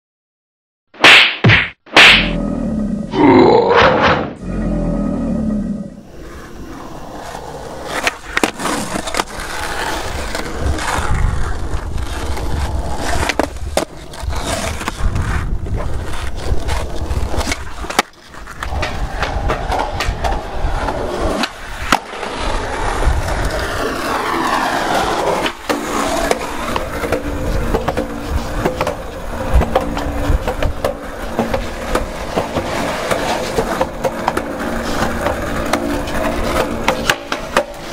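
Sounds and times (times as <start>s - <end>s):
skateboard wheels rolling on pavement: 4.3s - 37.9s
skateboard clacking: 7.0s - 11.2s, 15.8s - 37.9s.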